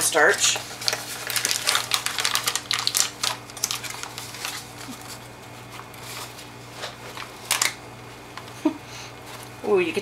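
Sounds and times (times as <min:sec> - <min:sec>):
cardboard box and plastic rustling: 0:00.2 - 0:07.7.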